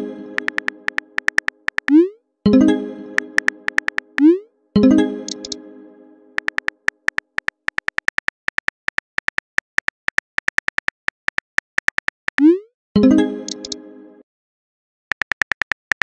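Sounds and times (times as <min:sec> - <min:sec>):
keyboard typing clicks: 0:00.4 - 0:02.1, 0:03.2 - 0:04.3, 0:05.3 - 0:05.6, 0:06.4 - 0:12.6, 0:13.5 - 0:13.8, 0:15.1 - 0:16.0.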